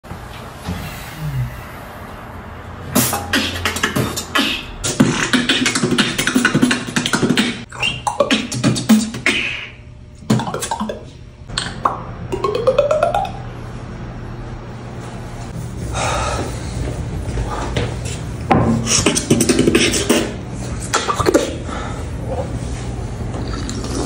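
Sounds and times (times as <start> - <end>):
rising vocal sweep: 1.0 - 11.2
beatboxing mouth percussion: 2.9 - 13.5, 18.6 - 21.7.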